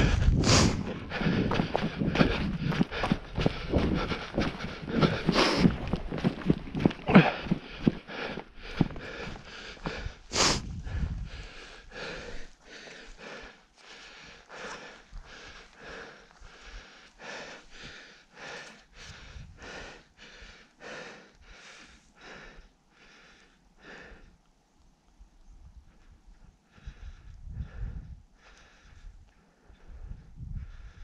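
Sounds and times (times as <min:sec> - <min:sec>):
heavy mouth breathing: 0:00.0 - 0:24.3.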